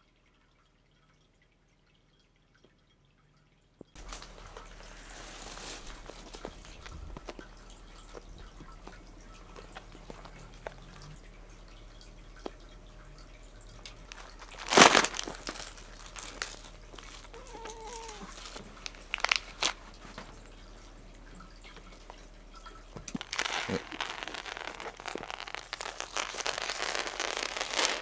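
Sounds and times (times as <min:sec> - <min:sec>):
plastic packets rustling: 0:04.0 - 0:11.2, 0:13.8 - 0:22.2, 0:23.0 - 0:28.0.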